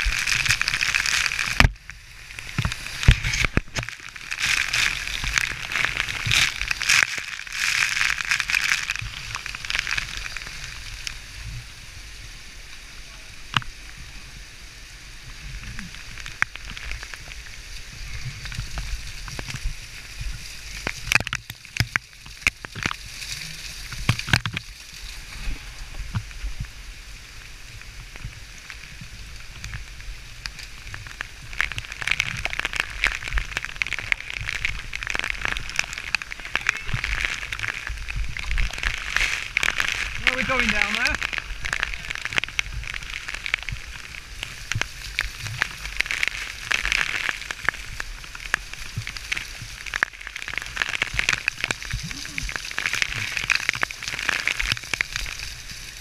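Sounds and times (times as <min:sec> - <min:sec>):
waterfall rushing over rock: 0:00.0 - 0:56.0
water spattering on helmet: 0:31.7 - 0:43.7.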